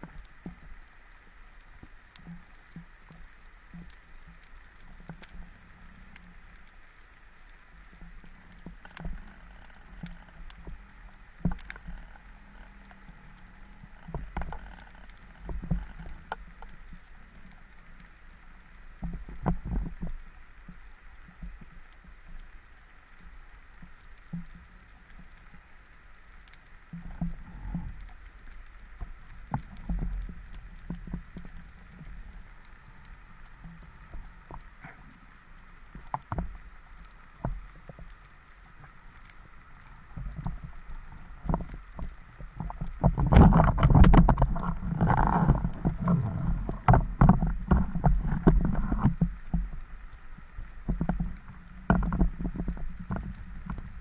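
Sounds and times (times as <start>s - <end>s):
faint underwater hiss: 0.0s - 54.0s
sharp clicks and crackles: 0.0s - 54.0s
low underwater thumping: 40.2s - 49.8s.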